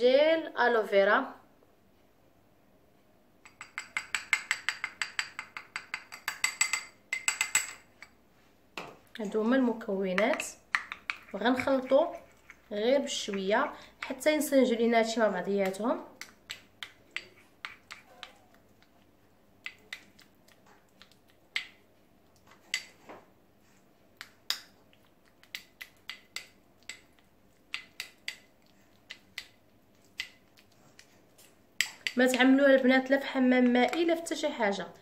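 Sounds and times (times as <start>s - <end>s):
plastic spoon scraping tub: 9.6s - 13.6s.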